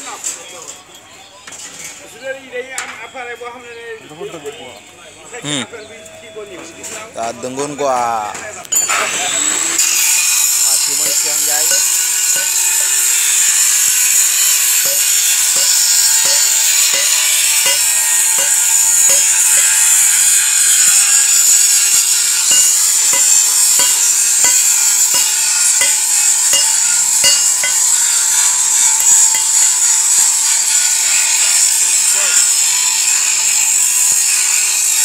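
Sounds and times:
power tool whining: 0:08.8 - 0:34.5
hammer striking steel: 0:09.8 - 0:30.3.

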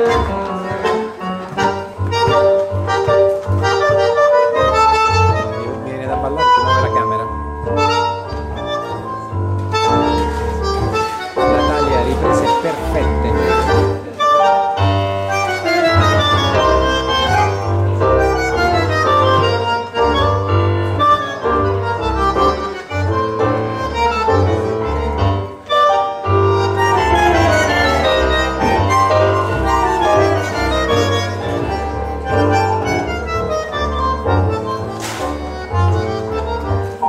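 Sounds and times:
live tango music trio: 0:00.0 - 0:37.0
bass line: 0:26.3 - 0:37.0.

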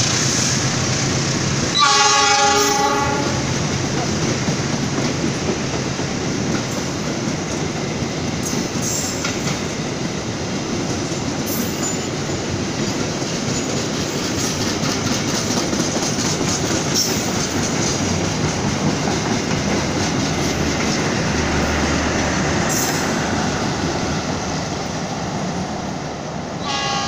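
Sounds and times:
train coaches rumbling past: 0:00.0 - 0:27.0
wheels clacking over rail joints: 0:01.8 - 0:25.6.

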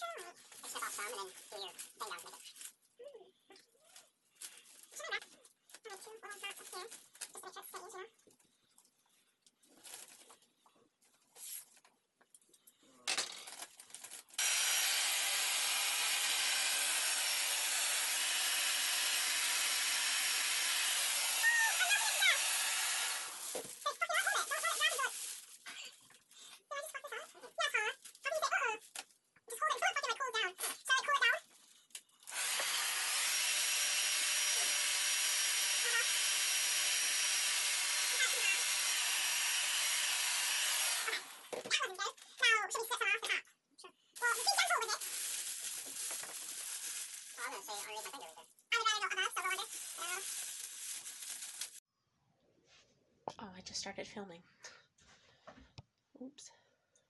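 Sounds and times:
cellophane crinkling: 0:00.1 - 0:12.7, 0:13.4 - 0:14.4, 0:23.1 - 0:29.2, 0:44.2 - 0:51.8
hair dryer blowing: 0:14.4 - 0:23.6, 0:32.3 - 0:41.4.

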